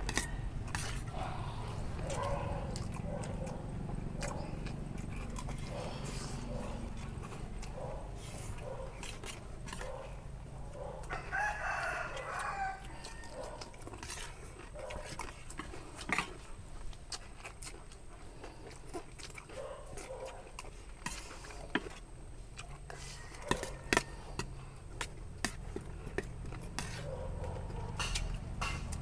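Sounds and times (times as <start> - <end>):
rooster crowing: 11.1 - 13.6, 22.9 - 24.4.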